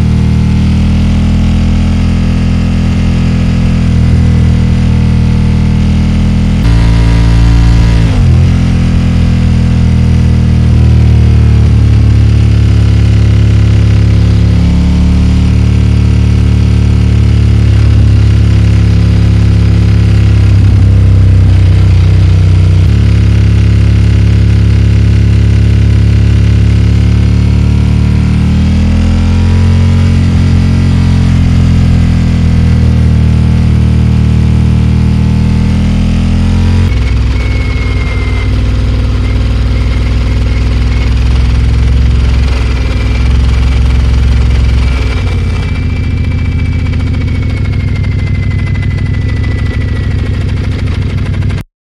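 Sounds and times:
motorcycle engine under way: 0.0 - 51.6.

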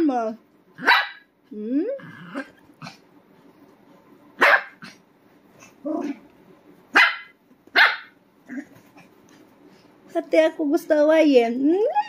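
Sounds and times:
dog barking: 0.8 - 1.3, 4.4 - 5.0, 6.9 - 8.2
dog yipping and grumbling: 1.9 - 3.0, 5.6 - 6.3, 7.0 - 9.0.

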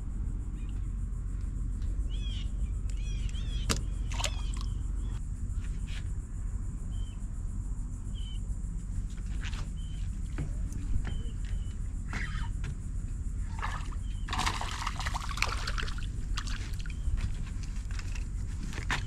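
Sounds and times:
steady low rumble: 0.0 - 19.0
birds chirping: 2.0 - 5.2, 9.5 - 12.7, 13.3 - 15.9, 16.5 - 17.4.

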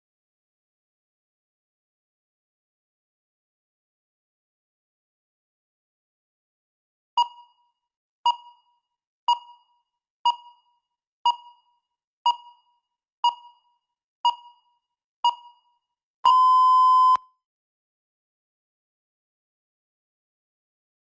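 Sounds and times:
countdown timer beeping: 12.3 - 17.2
long electronic beep: 16.3 - 17.2.

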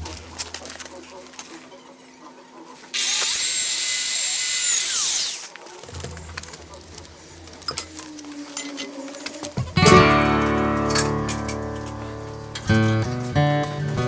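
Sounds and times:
power tool whining: 3.0 - 5.6.

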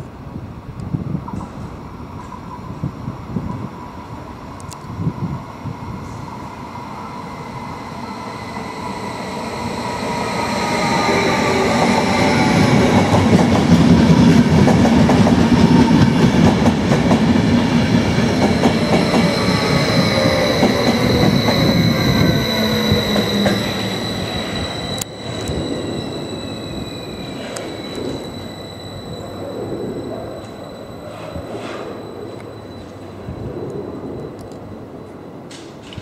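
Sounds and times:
train wheels clattering on track: 1.2 - 2.7, 11.0 - 25.6
low falling whine: 18.7 - 35.5.

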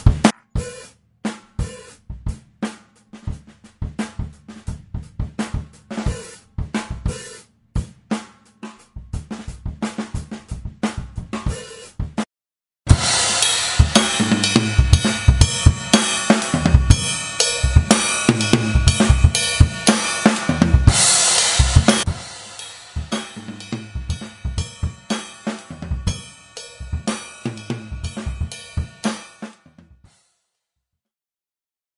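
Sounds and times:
snare drum: 0.0 - 1.9, 12.9 - 29.8
drum kit playing: 0.0 - 12.3, 12.9 - 30.1
cymbals: 12.9 - 29.8.

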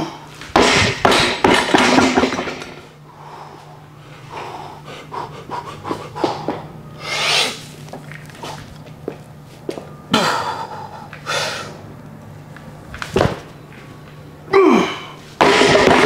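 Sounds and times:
man breathing heavily and straining: 3.0 - 7.7, 10.1 - 11.9.

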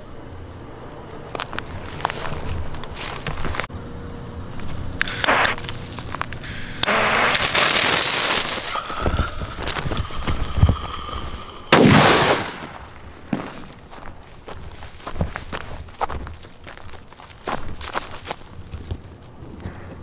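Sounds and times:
fuse hissing: 5.0 - 5.6, 6.3 - 13.0
firecracker bang: 6.8 - 13.7.

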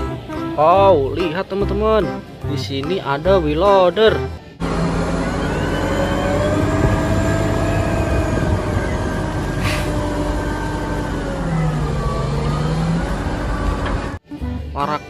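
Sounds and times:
loader diesel engine under load: 3.2 - 14.2.

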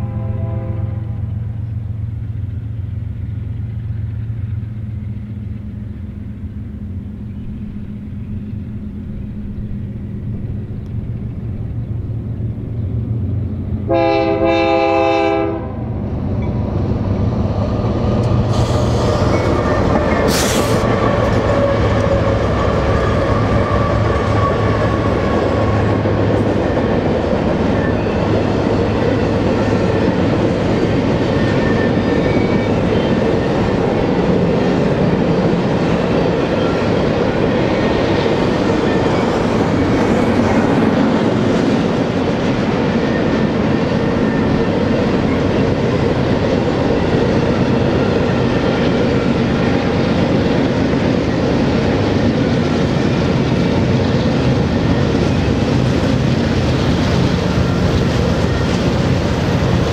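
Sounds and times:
train horn blast: 0.0 - 1.6, 13.9 - 16.0
diesel locomotives passing: 0.0 - 59.9
freight cars rumbling past: 0.0 - 59.9.

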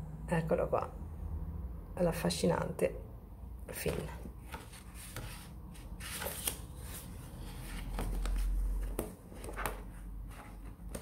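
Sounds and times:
book covers sliding: 3.8 - 11.0
pages rustling: 3.8 - 11.0.

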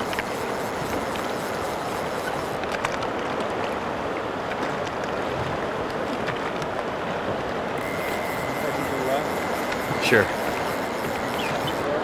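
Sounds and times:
flowing river water: 0.0 - 12.0
oar splashes and drips: 2.4 - 7.8.

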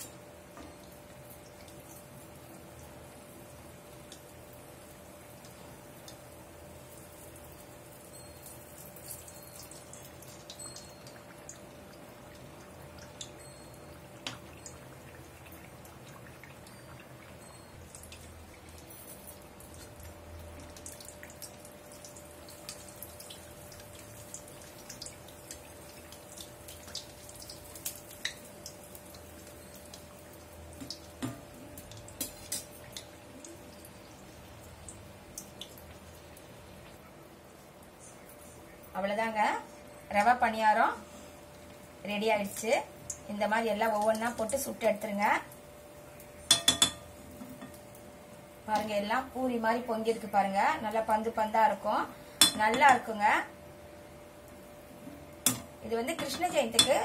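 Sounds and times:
hot oil bubbling and crackling: 0.0 - 57.0
steel spoon clinking: 46.5 - 47.8.

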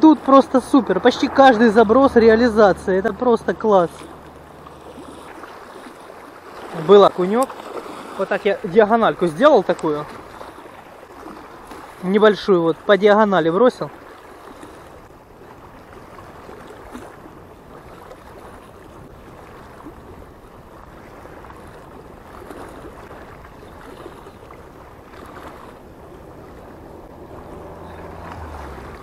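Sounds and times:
small waves lapping and splashing: 0.0 - 29.0
wind on microphone: 14.5 - 29.0.

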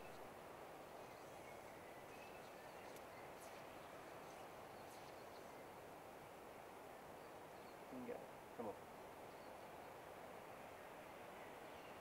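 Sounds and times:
steady low hiss: 0.0 - 12.0
faint bird chirps: 0.9 - 5.8.

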